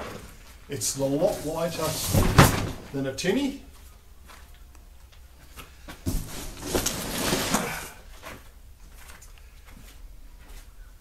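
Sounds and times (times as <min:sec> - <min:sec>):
fabric bag rustling and scraping: 0:06.0 - 0:08.0.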